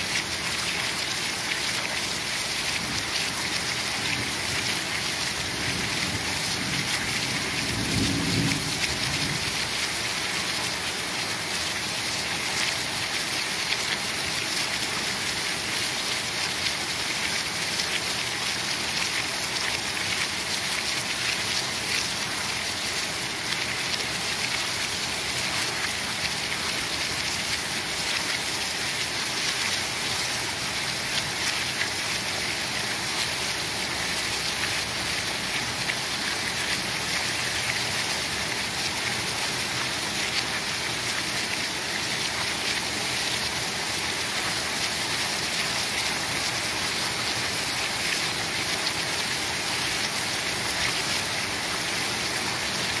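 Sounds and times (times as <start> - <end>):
heavy rain falling: 0.0 - 53.0
low rumble of thunder: 6.4 - 9.5.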